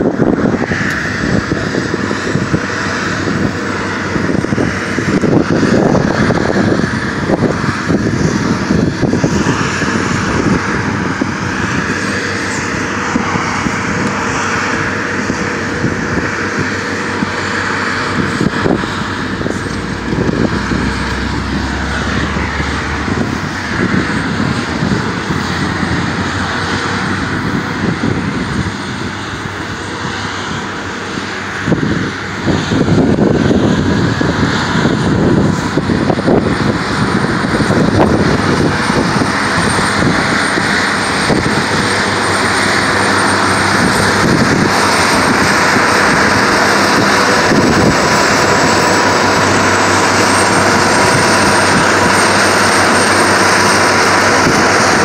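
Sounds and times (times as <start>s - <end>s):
truck engine drone: 0.0s - 55.0s
wind buffeting microphone: 0.0s - 55.0s
deep low hum: 17.2s - 28.7s.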